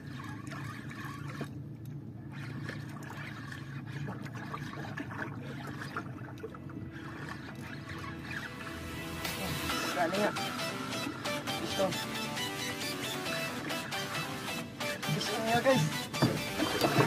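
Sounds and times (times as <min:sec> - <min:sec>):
boat motor humming: 0:00.0 - 0:17.0
water lapping against hull: 0:00.0 - 0:17.0.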